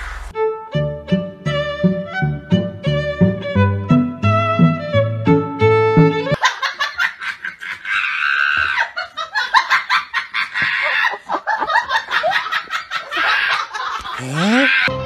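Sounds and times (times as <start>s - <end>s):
people laughing hard: 6.4s - 14.9s.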